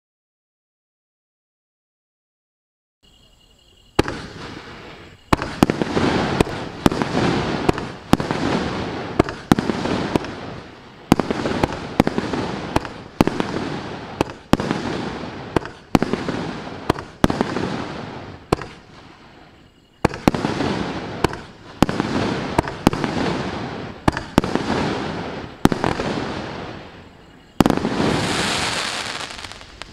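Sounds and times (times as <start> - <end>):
firework launch bangs: 4.0 - 10.4
firework aerial bursts: 4.0 - 29.9.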